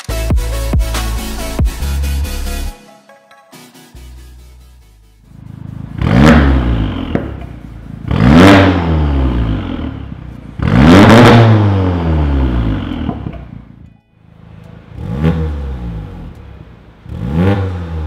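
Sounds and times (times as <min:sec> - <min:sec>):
car engine revving: 0:05.0 - 0:18.0.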